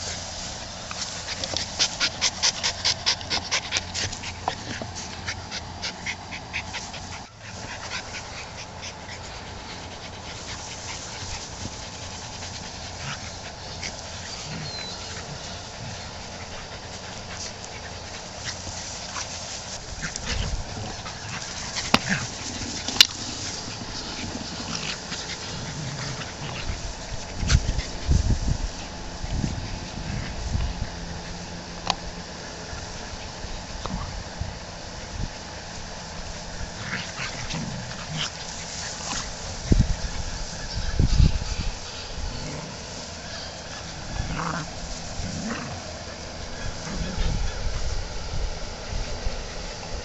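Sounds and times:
dog panting fast: 0.0 - 31.6, 37.0 - 44.4
dogs playing in grass: 0.0 - 50.0.

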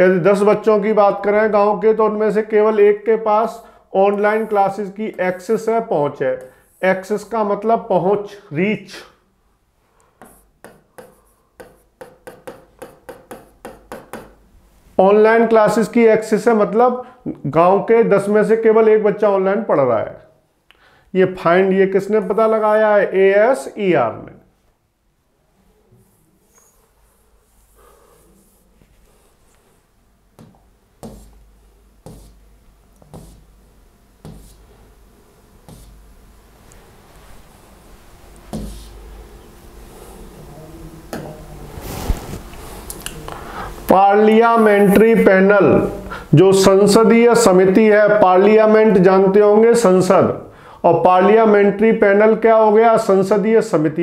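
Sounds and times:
pen scratching on paper: 10.2 - 14.3, 26.0 - 29.8, 31.0 - 31.4, 32.0 - 32.4, 33.0 - 33.5, 34.2 - 34.8, 35.7 - 36.0, 38.5 - 39.0
faint low hum: 19.7 - 49.3.

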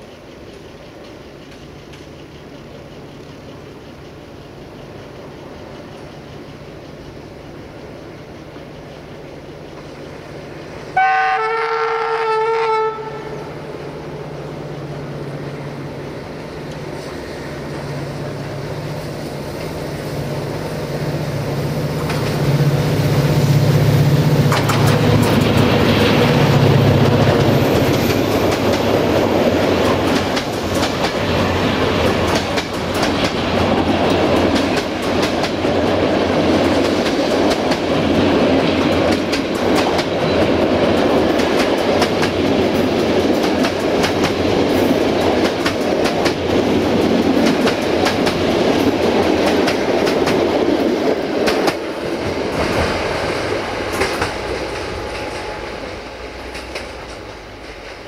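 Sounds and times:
train wheels clacking over rail joints: 0.0 - 13.4, 16.4 - 58.0
locomotive horn blast: 10.9 - 13.6
diesel engine rumble: 13.1 - 39.8.

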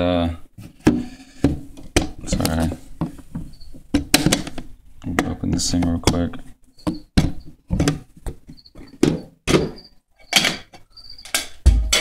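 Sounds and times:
sharp knocks and clunks: 0.7 - 12.0.

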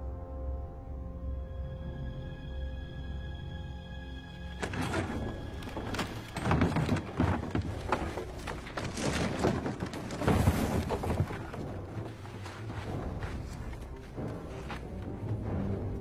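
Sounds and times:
wooden knocks and thuds: 4.6 - 12.3.

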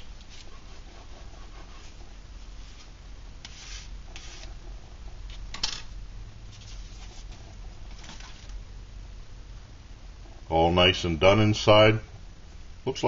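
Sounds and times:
soft scraping and rubbing: 0.0 - 4.6, 6.5 - 8.4.

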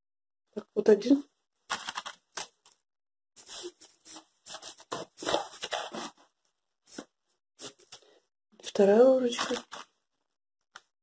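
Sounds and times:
plastic bag rustling: 3.4 - 6.2.

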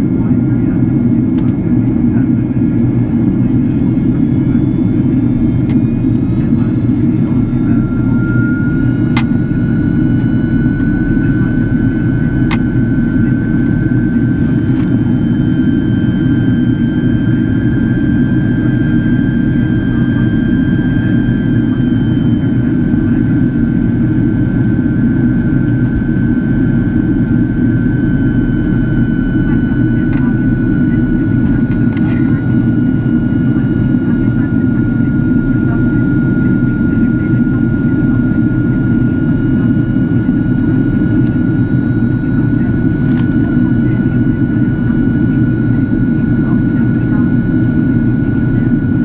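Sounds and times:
airflow and jet engine roar: 0.0 - 49.0
high engine whine: 0.0 - 49.0.

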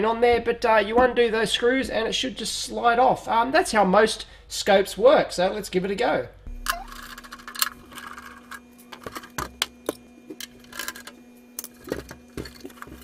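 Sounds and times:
faint steady hum: 4.2 - 13.0.

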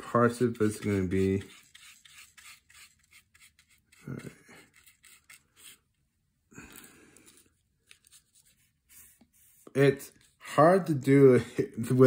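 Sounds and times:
paintbrush strokes on cardboard: 0.2 - 5.9, 7.3 - 10.8.

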